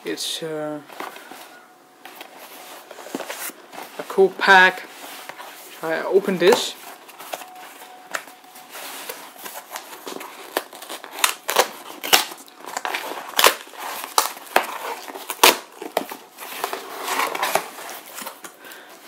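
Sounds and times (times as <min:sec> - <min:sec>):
cardboard box tearing: 0:09.1 - 0:18.4.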